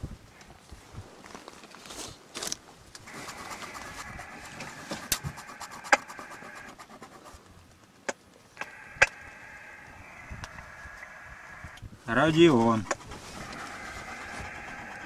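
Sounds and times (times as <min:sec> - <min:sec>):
radio static hiss: 0:03.0 - 0:06.8, 0:08.5 - 0:15.0
radio control clicks: 0:08.1 - 0:11.1.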